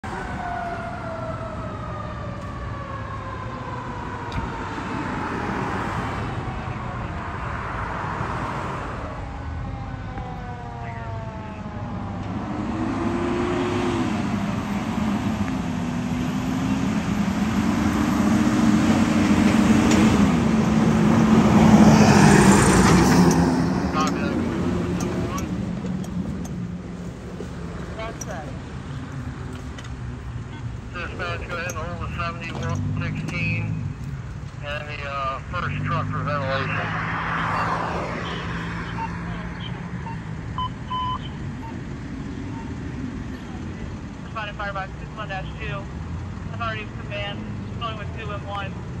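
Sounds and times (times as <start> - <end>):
fire engine siren wailing: 0.0 - 29.6, 34.7 - 45.9
truck engine running: 14.0 - 35.0.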